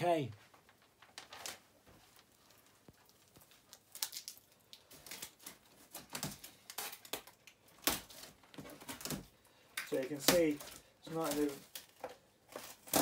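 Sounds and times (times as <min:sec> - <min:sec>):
packing tape peeling off cardboard: 0:02.3 - 0:09.3, 0:10.1 - 0:13.0.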